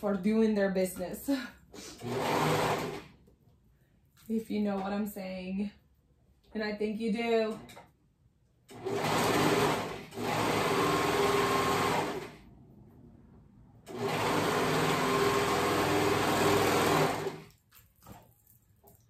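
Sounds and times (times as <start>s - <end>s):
serger stitching: 1.8s - 3.2s, 8.7s - 12.4s, 13.9s - 17.5s.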